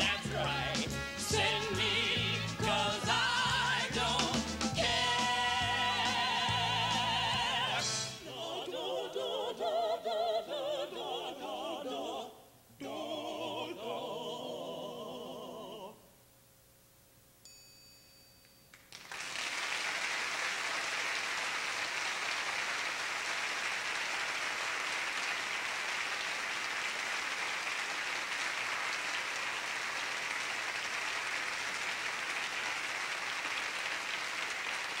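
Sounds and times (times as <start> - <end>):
audience applauding: 18.7 - 35.0.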